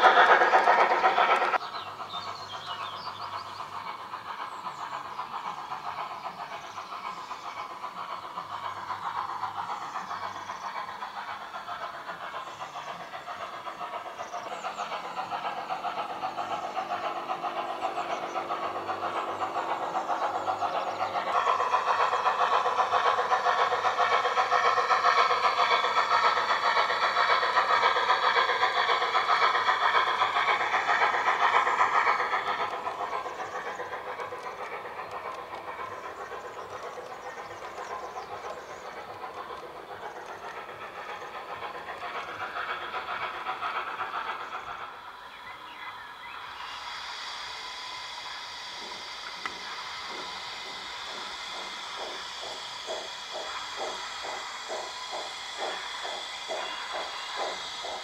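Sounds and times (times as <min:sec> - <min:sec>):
wheels clattering on track: 0:00.0 - 0:45.0, 0:48.6 - 0:58.0
model train motor whine: 0:46.0 - 0:58.0.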